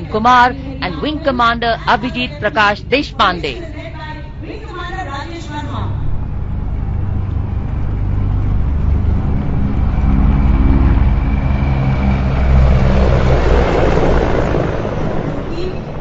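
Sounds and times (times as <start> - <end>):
faint high whine: 0.0 - 12.7
helicopter rotor chop: 0.0 - 16.0.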